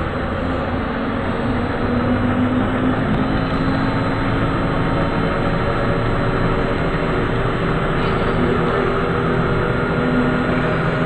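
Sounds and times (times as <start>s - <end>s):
trolleybus running rumble: 0.0s - 11.0s.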